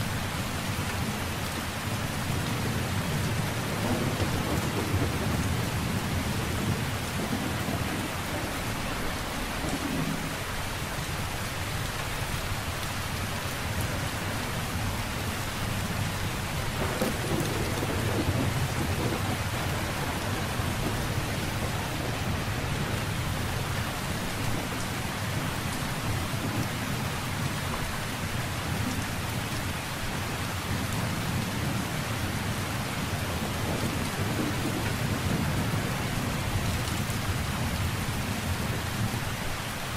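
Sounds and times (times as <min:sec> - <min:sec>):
heavy rain: 0:00.0 - 0:39.9
low thunder rumbling: 0:01.8 - 0:10.7, 0:15.7 - 0:29.5, 0:30.1 - 0:39.2.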